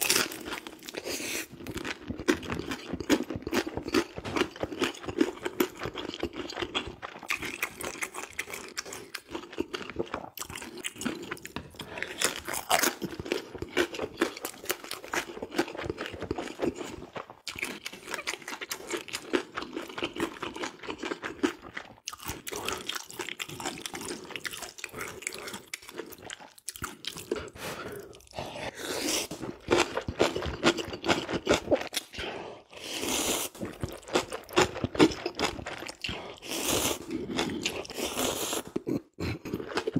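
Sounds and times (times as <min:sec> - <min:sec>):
wet chewing and crunching: 0:00.0 - 0:28.4, 0:29.3 - 0:32.2, 0:33.2 - 0:39.9
slurping noodles: 0:27.1 - 0:30.2, 0:31.1 - 0:35.2, 0:35.8 - 0:39.9.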